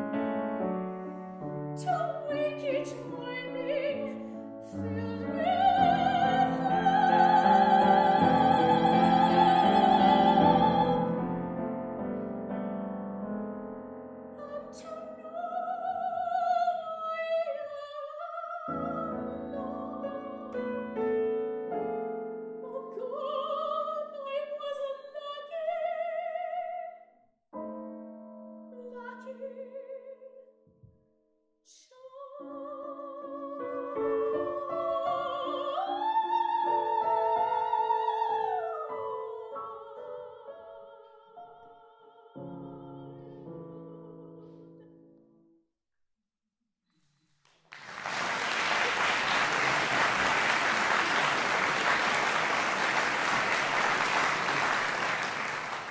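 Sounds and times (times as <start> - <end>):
grand piano: 0.0 - 26.7, 27.6 - 31.0, 32.2 - 45.6, 47.7 - 55.9
soprano singing with vibrato: 1.8 - 11.4, 14.4 - 21.0, 22.6 - 27.0, 28.8 - 30.4, 31.7 - 44.4
audience applause: 47.7 - 55.9.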